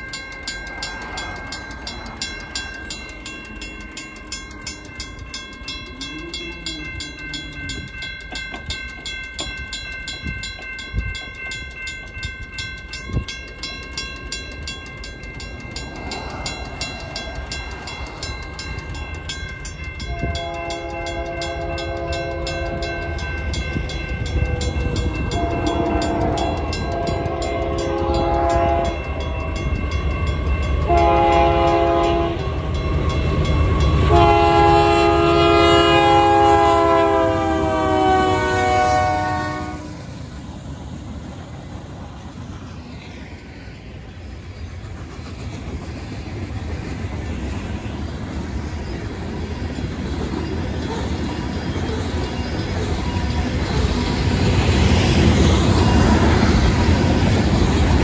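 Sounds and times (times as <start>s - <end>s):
crossing warning bells ringing: 0.0s - 58.0s
train rumble: 0.0s - 58.0s
locomotive air horn blasts: 20.1s - 23.2s, 25.3s - 29.0s, 30.8s - 32.5s, 34.0s - 40.0s.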